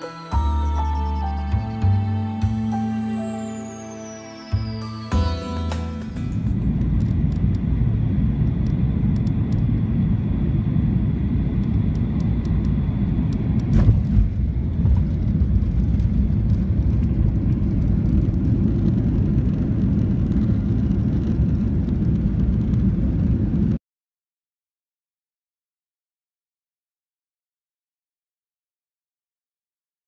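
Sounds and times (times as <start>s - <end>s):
airliner cabin engine rumble: 5.5s - 23.8s.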